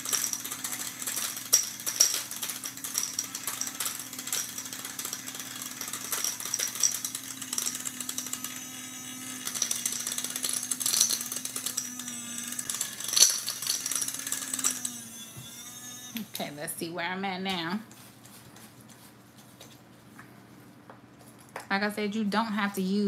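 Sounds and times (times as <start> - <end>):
chalk rattling against blade: 0.0 - 15.0
grinder motor hum: 0.0 - 17.7.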